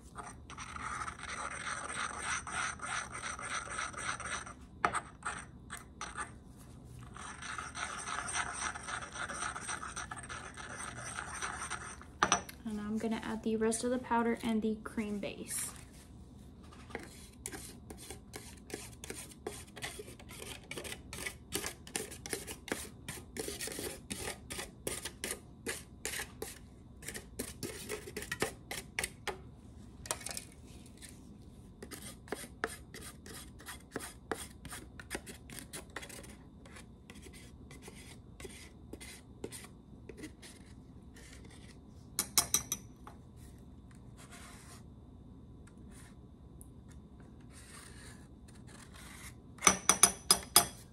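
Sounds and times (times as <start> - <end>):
metal spatula scraping: 0.0 - 6.4, 7.0 - 12.1.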